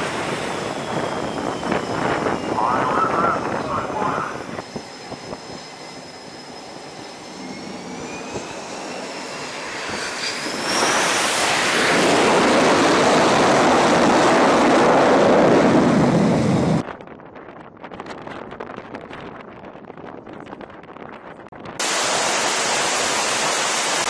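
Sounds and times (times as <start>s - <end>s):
jet engine roar: 0.0s - 16.9s, 21.8s - 24.0s.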